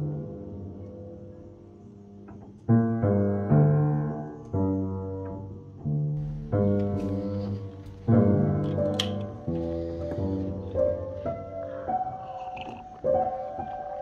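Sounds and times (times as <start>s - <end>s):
slow low instrumental music: 6.1s - 14.0s.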